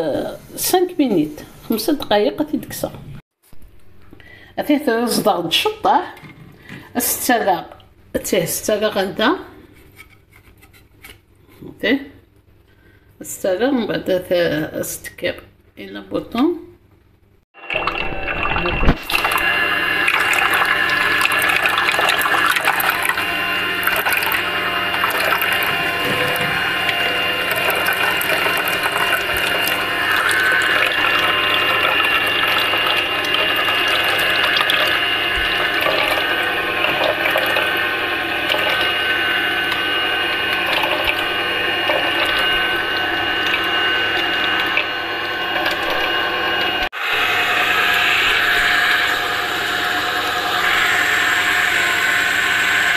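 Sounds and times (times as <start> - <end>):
juicer motor hum and whine: 17.6 - 52.9.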